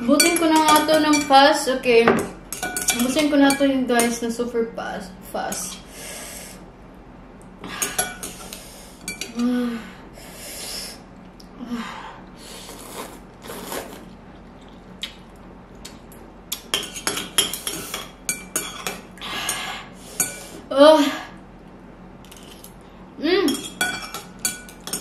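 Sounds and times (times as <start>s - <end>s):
noodles being slurped: 12.6s - 14.9s.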